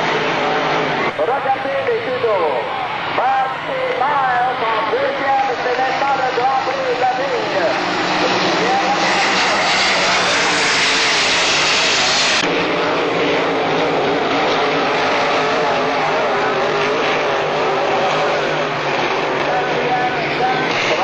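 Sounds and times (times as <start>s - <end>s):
racing boat engine roaring: 0.0s - 21.0s.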